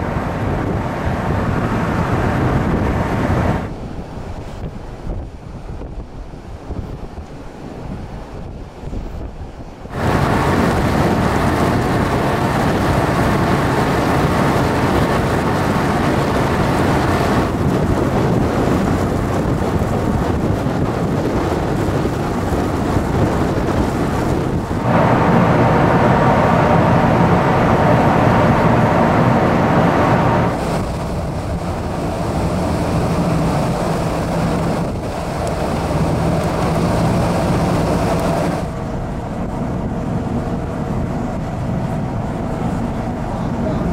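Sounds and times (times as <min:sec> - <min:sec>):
rushing water: 0:00.0 - 0:43.9
wind on microphone: 0:00.0 - 0:43.9
diesel engines droning: 0:09.9 - 0:43.9.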